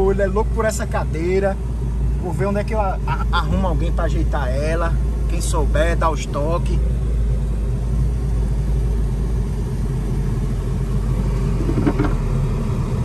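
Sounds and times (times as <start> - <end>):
car engine and road rumble: 0.0 - 13.0.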